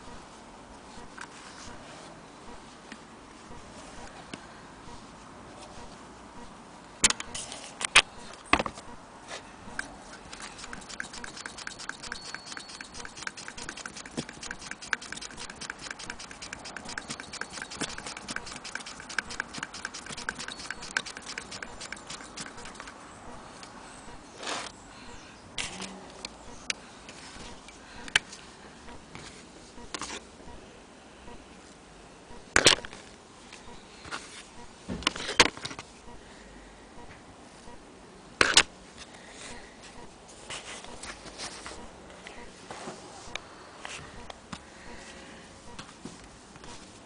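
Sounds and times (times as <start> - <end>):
sewing machine clicking: 10.2 - 23.0.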